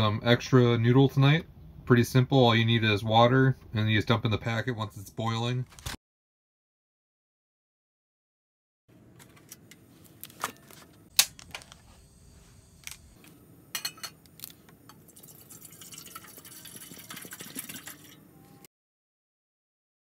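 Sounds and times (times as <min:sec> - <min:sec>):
metal pot set on burner: 0:13.7 - 0:15.0
water pouring into pot: 0:15.0 - 0:18.3.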